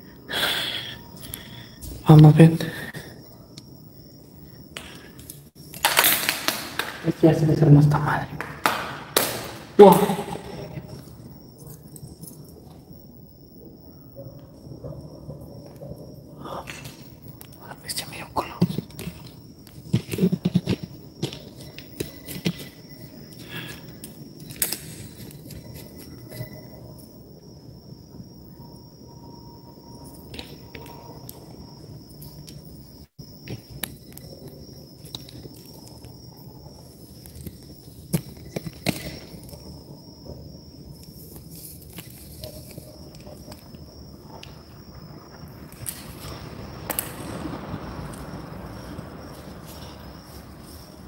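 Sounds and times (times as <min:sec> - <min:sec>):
faint high whine: 0:00.0 - 0:51.0
insects chirring: 0:00.0 - 0:51.0
low background rumble: 0:42.6 - 0:51.0.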